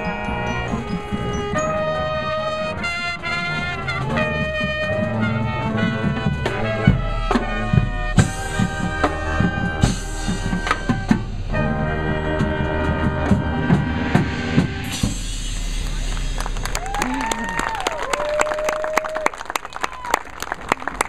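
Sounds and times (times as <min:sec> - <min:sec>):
brass section holding chords: 0:00.0 - 0:15.8
heavy low bass: 0:03.2 - 0:18.0
drum and percussion hits: 0:04.0 - 0:17.5.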